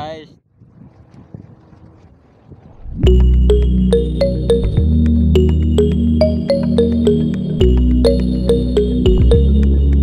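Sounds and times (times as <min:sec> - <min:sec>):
wind buffeting microphone: 0:00.0 - 0:03.3.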